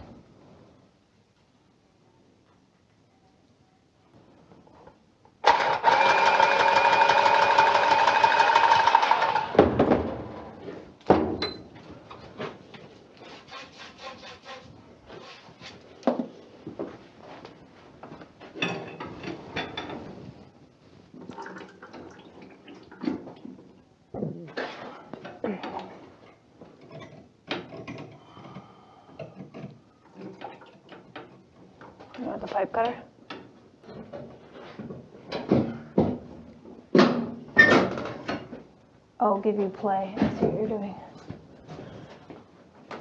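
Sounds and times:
power tool motor running: 5.5 - 9.6
knocks and clatter on pipe fittings: 26.8 - 28.2.

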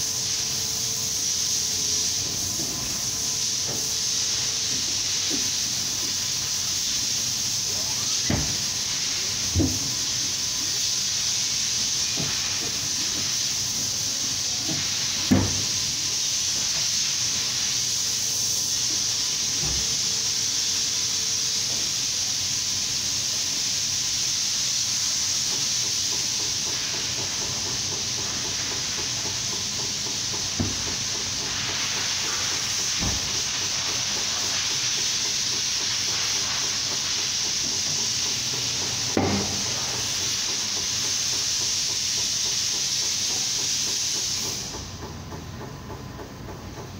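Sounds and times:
steady hiss: 0.0 - 46.9
hand tools knocking on tyre: 25.4 - 46.9.

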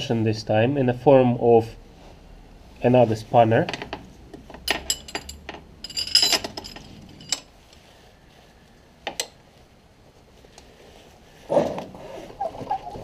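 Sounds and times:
steel spanners clinking: 4.6 - 7.5.

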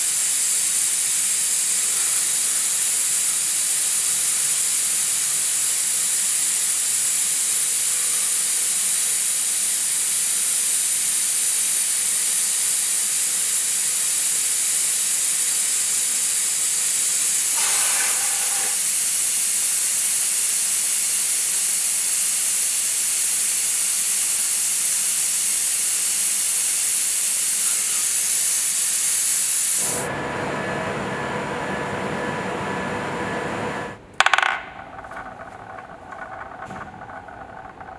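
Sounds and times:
coolant spray hissing: 0.0 - 30.1
room sound: 17.4 - 19.0, 33.7 - 37.9.

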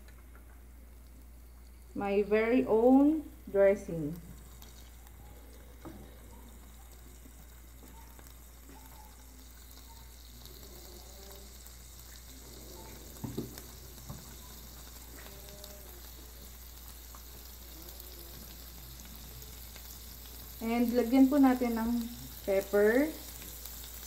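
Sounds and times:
prawns sizzling on grill pan: 0.0 - 24.0.

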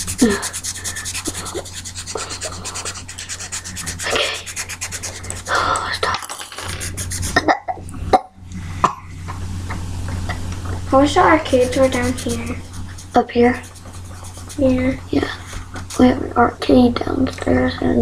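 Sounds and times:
marker scrubbing on paper: 0.0 - 7.5, 11.0 - 16.3.

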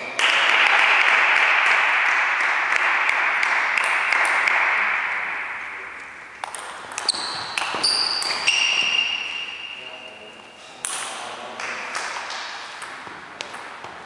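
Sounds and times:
table tennis ball clicks: 6.4 - 8.5.

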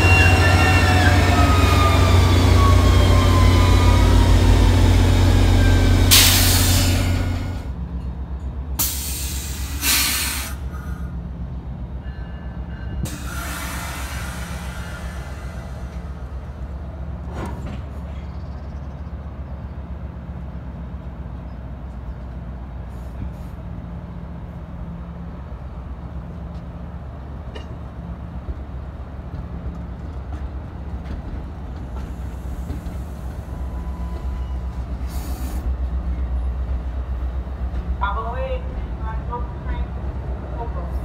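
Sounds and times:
train rumbling: 0.0 - 41.0
air hiss: 8.8 - 10.8, 35.0 - 35.7.

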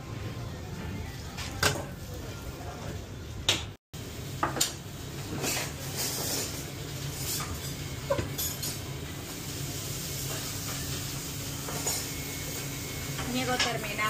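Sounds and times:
kitchen ventilation hum: 0.0 - 14.0.

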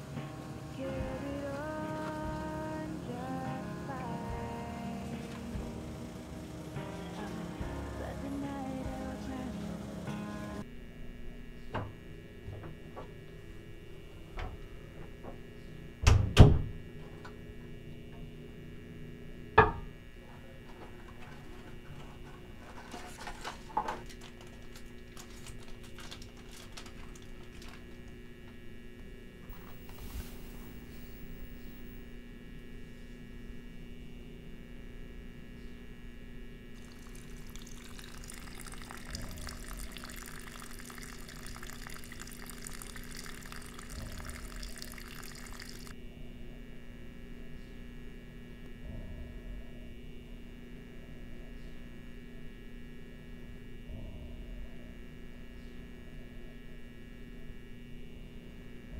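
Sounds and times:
water running into sink: 36.8 - 45.9.

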